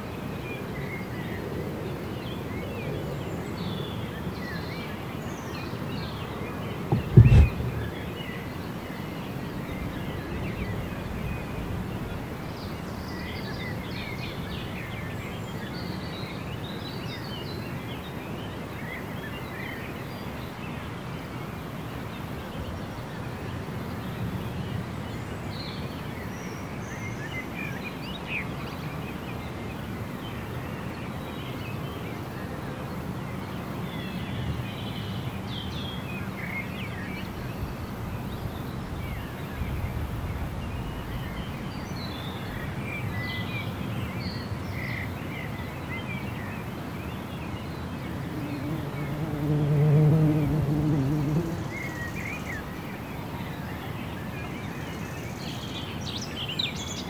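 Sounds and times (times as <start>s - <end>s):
low background rumble: 6.9s - 8.2s.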